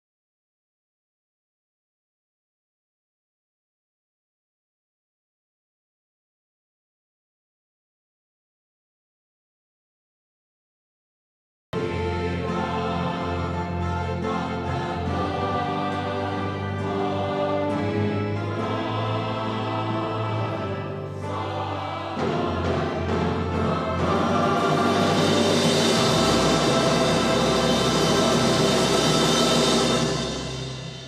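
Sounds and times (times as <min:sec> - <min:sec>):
choir singing a hymn: 0:11.8 - 0:31.0
electronic organ: 0:11.8 - 0:31.0.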